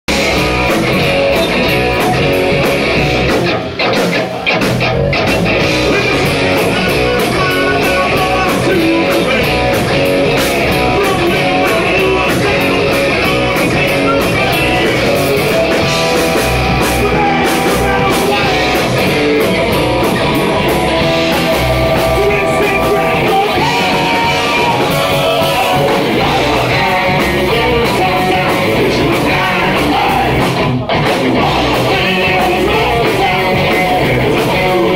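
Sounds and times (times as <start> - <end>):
rock band playing live: 0.1 - 34.9
person singing into microphone: 5.8 - 9.8, 10.7 - 15.6, 16.8 - 19.1, 21.9 - 30.6, 31.4 - 34.9.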